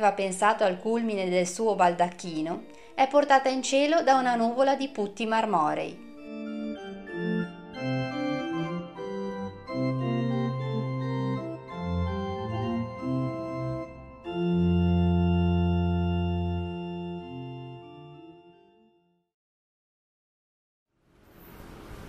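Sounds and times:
organ music: 6.0 - 19.3.

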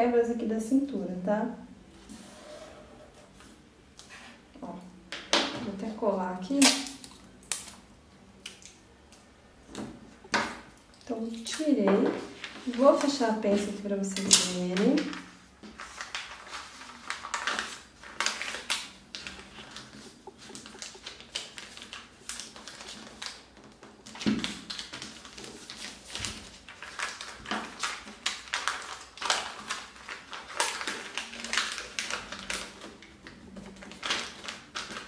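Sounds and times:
paper crinkling and rustling: 10.4 - 35.0.

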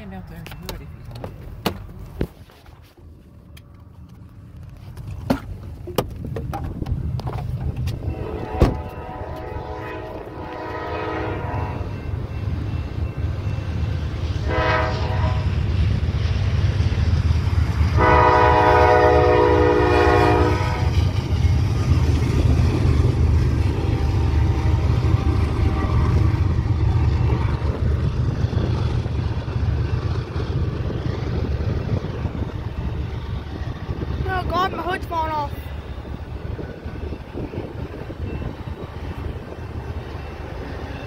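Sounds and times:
train rumbling past: 0.0 - 41.0
locomotive air horn blasts: 8.0 - 12.0, 14.4 - 15.6, 18.0 - 20.9.

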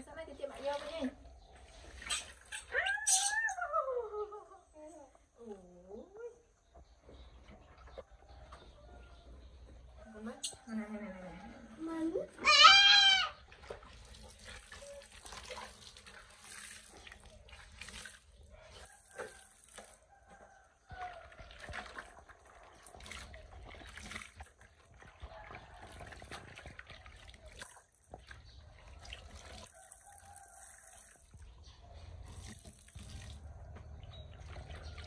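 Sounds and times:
tap water splashing and dripping: 13.4 - 31.6, 32.3 - 35.0.

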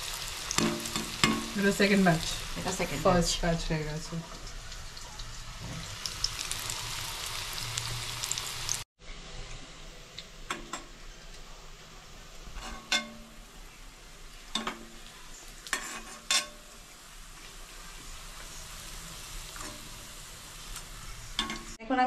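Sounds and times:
food deep-frying in oil: 0.0 - 22.0
steel ladle clinking against pan: 12.6 - 13.3, 14.5 - 15.0, 21.4 - 21.8.

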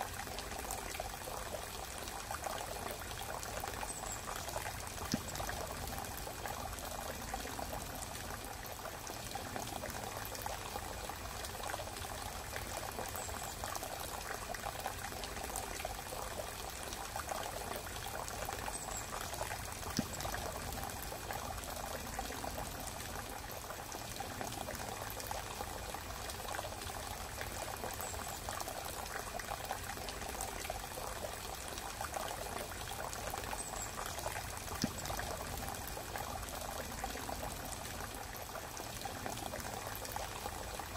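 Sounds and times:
running trickling water: 0.0 - 40.9.

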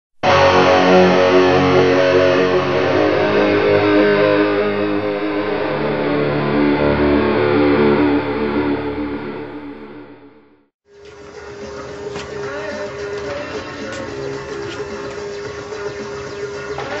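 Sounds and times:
electric guitar intro music: 0.2 - 10.7.

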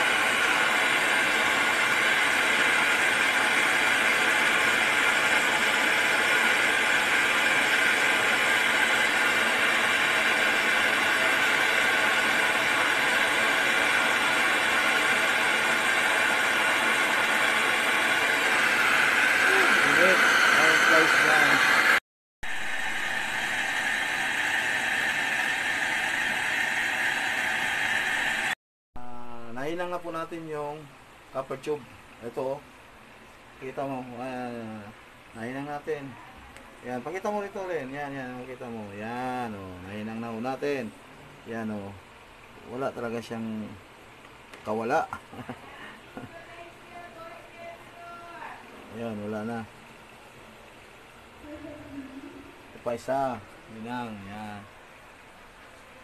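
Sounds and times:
gas torch hissing: 0.0 - 28.6.

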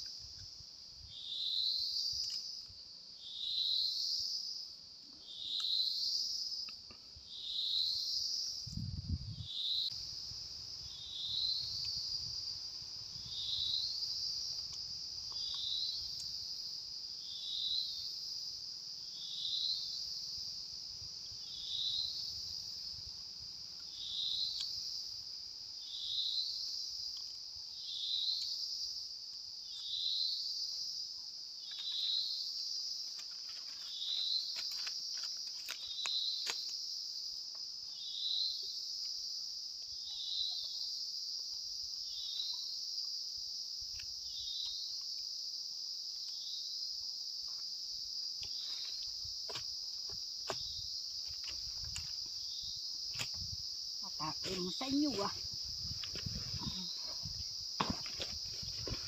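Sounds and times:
insects shrilling: 9.5 - 38.9, 48.2 - 59.0.

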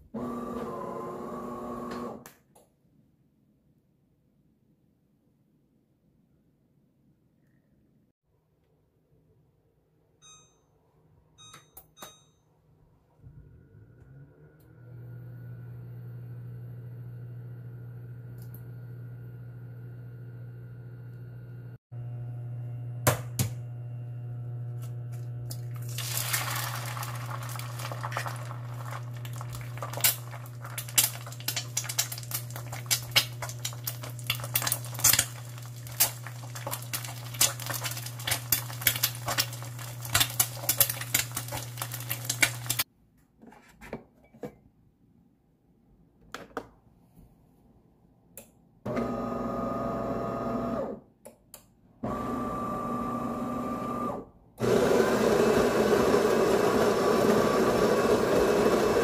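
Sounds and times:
coffee machine whirring: 0.0 - 2.2, 14.0 - 42.8, 48.9 - 51.0, 52.0 - 59.0
cooktop humming: 0.0 - 2.2, 13.7 - 42.9, 52.0 - 59.0
oil spitting crackles: 25.5 - 42.8
egg sizzling in frying pan: 25.8 - 42.9.

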